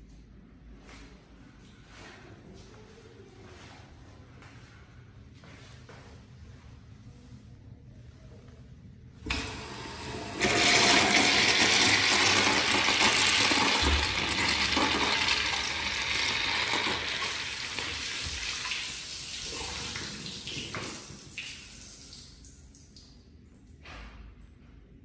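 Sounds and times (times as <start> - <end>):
water rushing into bowl: 9.3 - 20.9
urinal flush valve opening: 9.3 - 21.2
water spilling onto tile floor: 9.3 - 23.0.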